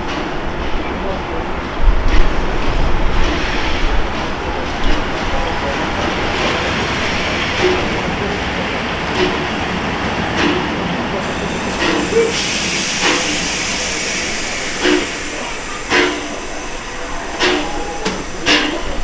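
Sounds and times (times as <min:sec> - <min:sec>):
train knocks and clanks: 0:00.0 - 0:19.0
higher steam hiss: 0:05.8 - 0:19.0
steam hiss: 0:10.4 - 0:19.0.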